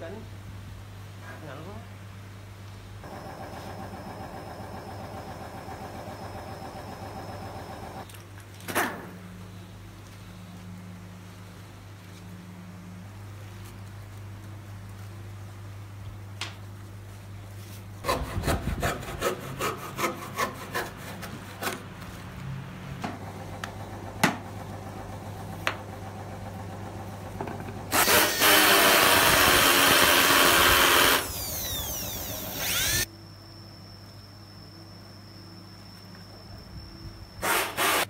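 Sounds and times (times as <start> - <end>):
power tool running and winding down: 27.9 - 33.1.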